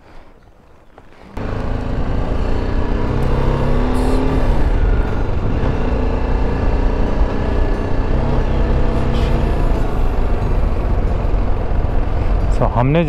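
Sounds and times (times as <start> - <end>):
motorcycle engine running: 1.2 - 13.0
wind noise: 4.5 - 7.3.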